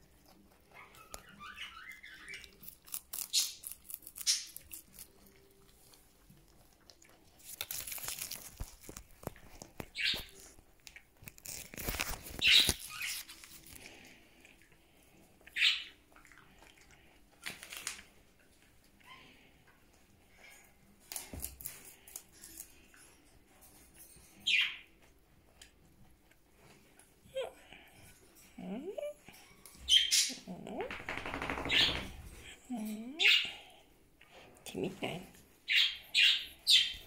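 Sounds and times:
rabbits chewing crisp greens: 0:00.0 - 0:28.6
rustling: 0:02.5 - 0:14.2.

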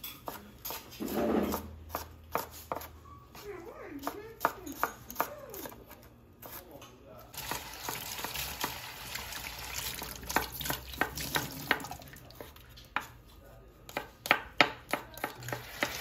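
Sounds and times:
knife chopping on wooden board: 0:00.2 - 0:03.4, 0:10.0 - 0:13.2, 0:13.8 - 0:16.0.

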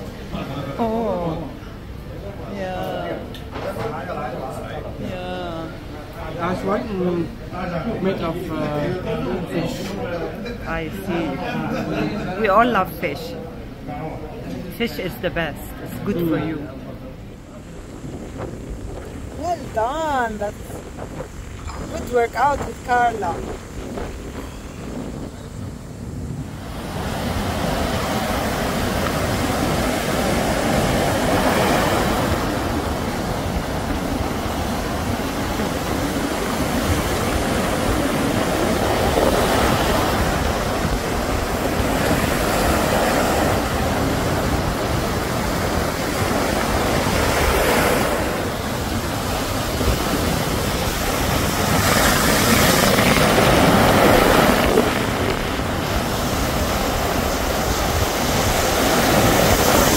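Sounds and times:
sea surf breaking: 0:00.0 - 0:59.9
wind rumbling on microphone: 0:15.6 - 0:59.9.

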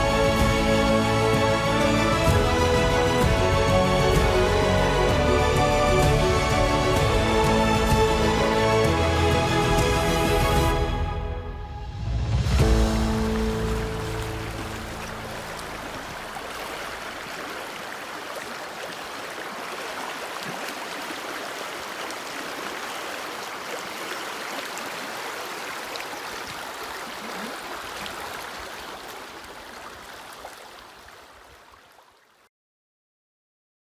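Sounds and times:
river water rushing: 0:12.6 - 0:32.3.

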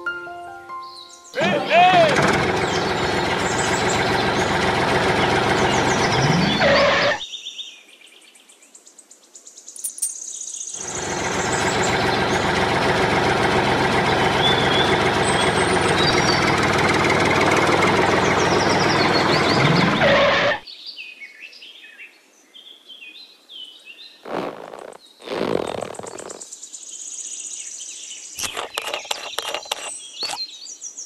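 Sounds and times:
tractor engine idling: 0:01.4 - 0:07.2, 0:10.8 - 0:20.6.

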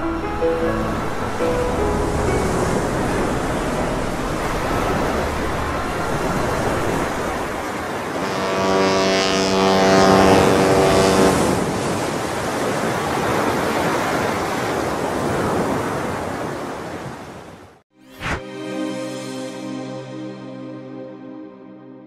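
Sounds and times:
ship's horn blast: 0:00.0 - 0:11.9
ocean waves rushing: 0:00.0 - 0:18.4.

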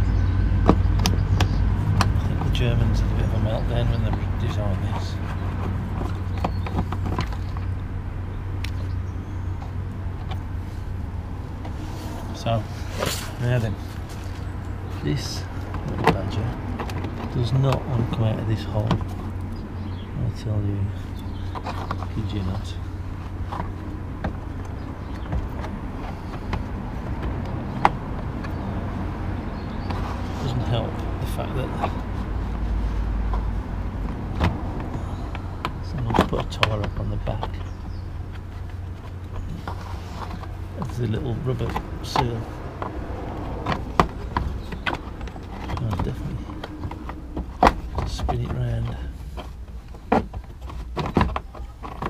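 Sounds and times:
low steady rumble: 0:00.0 - 0:52.0
plastic clicks and knocks: 0:41.6 - 0:52.0.

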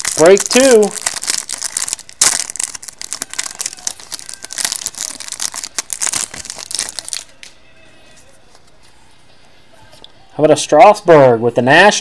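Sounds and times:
plastic wrapping crinkling and tearing: 0:00.0 - 0:07.6.

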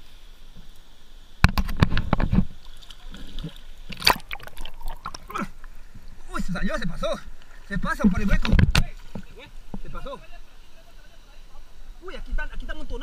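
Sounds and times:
water splashing and sloshing: 0:01.4 - 0:10.1.

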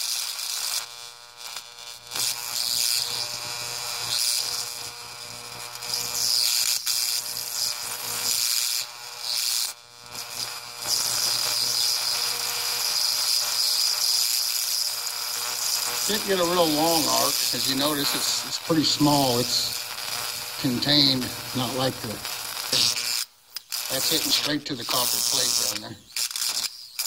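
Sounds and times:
high-voltage discharge sizzling: 0:00.0 - 0:27.0
steady electrical hum: 0:07.2 - 0:26.6.

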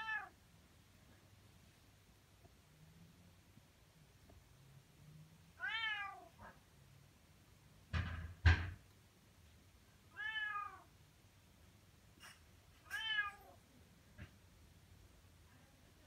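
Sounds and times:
cat meowing: 0:00.0 - 0:00.4, 0:05.6 - 0:06.6, 0:10.1 - 0:10.9, 0:12.8 - 0:13.6
sharp knocks: 0:07.9 - 0:08.8.

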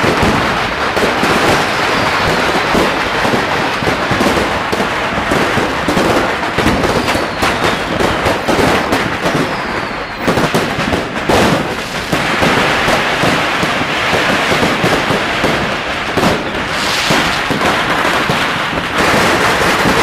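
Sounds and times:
firecrackers crackling and banging: 0:00.0 - 0:20.0
faint falling whistle: 0:09.4 - 0:10.4.

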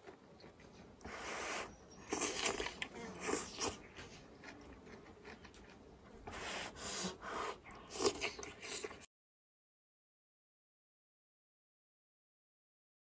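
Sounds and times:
person chewing: 0:00.0 - 0:09.1
slurping noodles: 0:01.0 - 0:05.6, 0:06.2 - 0:09.1.

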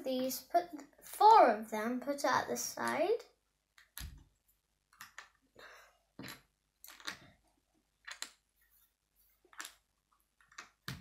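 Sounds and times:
plastic bricks clicking: 0:04.9 - 0:05.4, 0:06.2 - 0:07.4, 0:08.0 - 0:08.4, 0:09.5 - 0:11.0.

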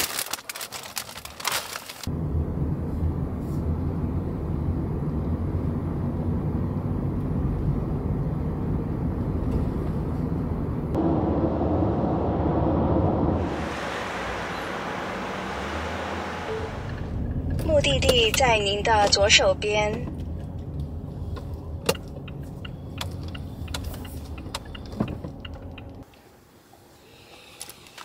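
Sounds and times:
paper bag crinkling: 0:00.0 - 0:02.1
car cabin road and engine rumble: 0:00.9 - 0:28.0.

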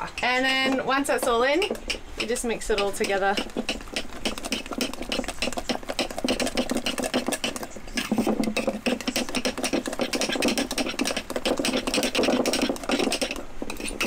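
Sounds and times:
spoon scraping inside glass jar: 0:04.3 - 0:14.0.

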